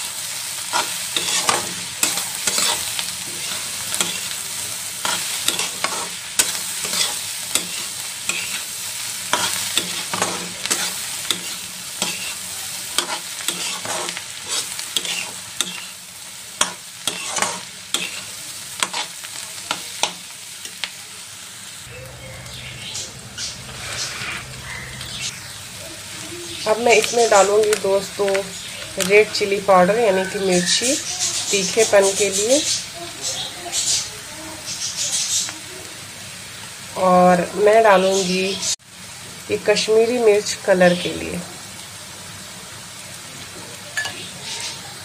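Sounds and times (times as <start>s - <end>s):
onions sizzling in oil: 0.0s - 45.0s
metal spatula scraping pan: 0.7s - 4.4s, 5.0s - 8.7s, 9.3s - 12.4s, 13.0s - 15.9s, 16.6s - 19.1s, 22.5s - 25.3s.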